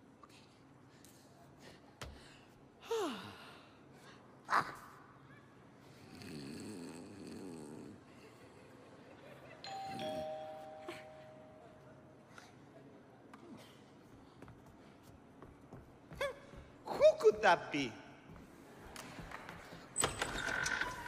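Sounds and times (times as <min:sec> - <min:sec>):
two-tone doorbell chime: 0:09.7 - 0:11.8.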